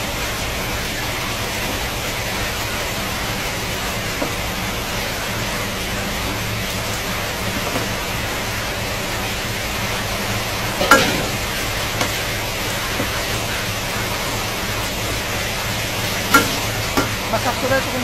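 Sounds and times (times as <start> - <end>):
eggs sizzling in oil: 0.0 - 18.0
metal spatula knocking on pan: 16.3 - 17.2.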